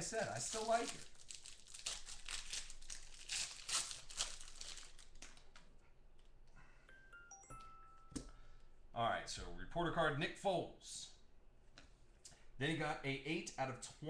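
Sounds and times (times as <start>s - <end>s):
plastic wrapping crinkling and tearing: 0.0s - 5.7s.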